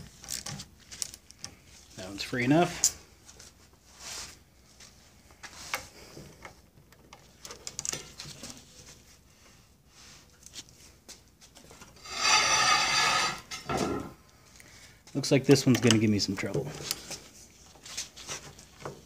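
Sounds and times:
metal rasping scrape: 12.0s - 13.8s.

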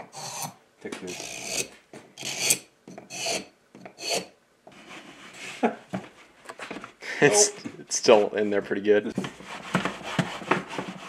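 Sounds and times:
wood rasping and rubbing: 1.1s - 5.6s, 9.4s - 11.0s.

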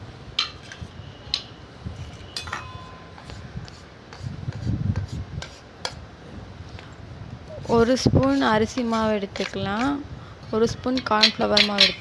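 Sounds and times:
steel plates and bowls clinking: 2.3s - 3.3s, 10.8s - 12.0s.

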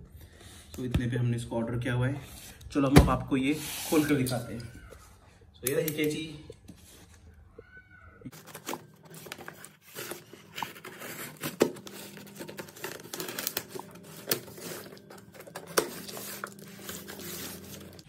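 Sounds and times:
scissors cutting packing tape: 8.4s - 18.0s
tape and cardboard tearing: 8.4s - 18.0s.

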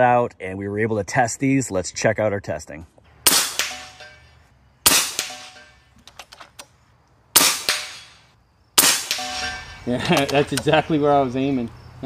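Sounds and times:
air rifle shots: 3.2s - 5.9s, 7.4s - 10.6s.

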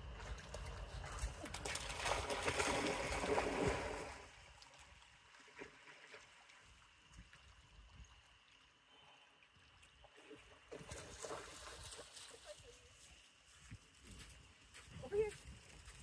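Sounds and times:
water sloshing and splashing: 0.0s - 8.7s.

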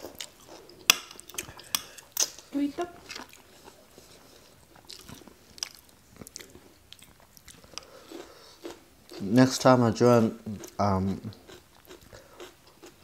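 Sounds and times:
chewing and crunching food: 0.0s - 9.7s, 10.3s - 13.0s.

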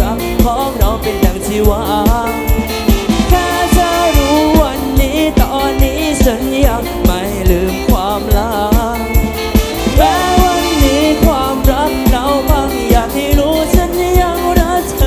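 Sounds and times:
heavy bass drum beat: 0.0s - 15.0s
live band music with singing: 0.0s - 15.0s
ticking hi-hat: 2.3s - 7.6s, 9.0s - 15.0s.

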